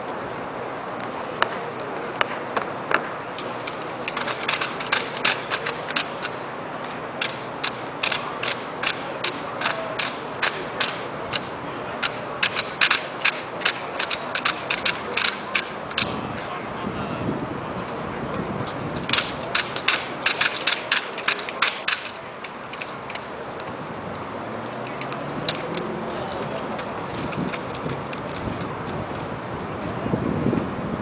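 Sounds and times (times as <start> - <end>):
rifles slapped and clacking: 2.2 - 6.4, 7.2 - 16.5, 18.6 - 23.7, 24.8 - 29.0
rifle butts on pavement: 19.0 - 22.2.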